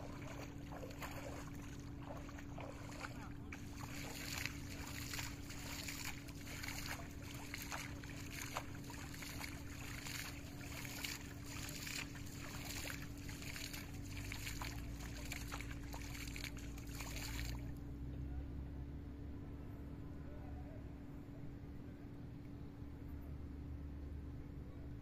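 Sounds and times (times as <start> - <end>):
hand splashing shallow water: 0.0 - 17.7
steady low hum: 0.0 - 25.0.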